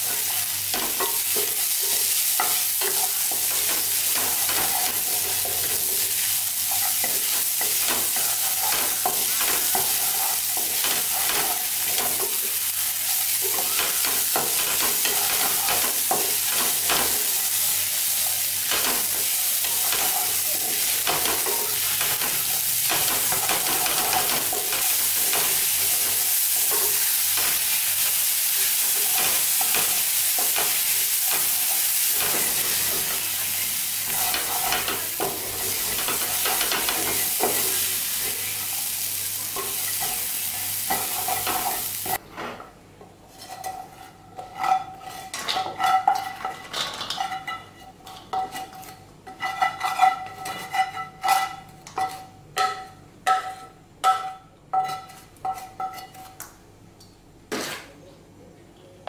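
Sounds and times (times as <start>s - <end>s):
spatula scraping frying pan: 0.0s - 17.7s, 18.6s - 42.2s, 43.3s - 52.4s
corn sizzling in butter: 0.0s - 42.2s
spatula clanking on metal cookware: 0.2s - 6.1s, 6.7s - 12.6s, 18.6s - 27.8s, 28.8s - 33.4s, 34.1s - 38.5s, 43.4s - 56.3s.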